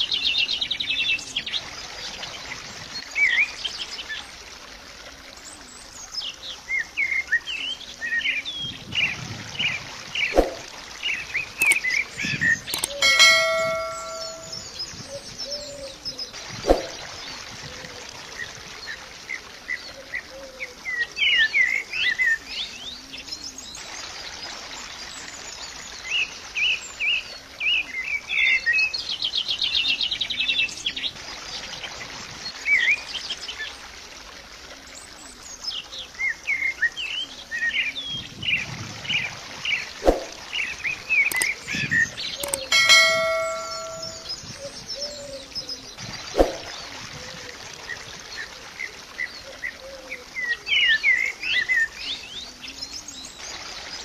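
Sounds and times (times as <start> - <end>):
birds chirping: 9.7 - 17.1, 39.7 - 46.9
sharp clicks: 11.6 - 11.9, 12.7 - 14.5, 41.3 - 41.6, 42.4 - 44.2
ringing chime-like tone: 12.8 - 14.7, 42.4 - 44.3.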